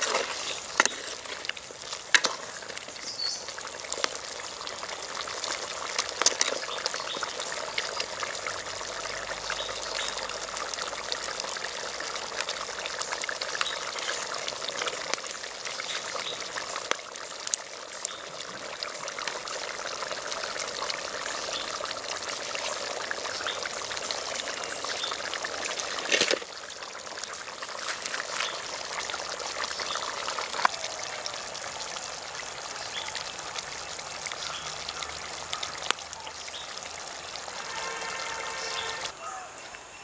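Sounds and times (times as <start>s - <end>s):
curry bubbling in a pot: 0.0s - 39.2s.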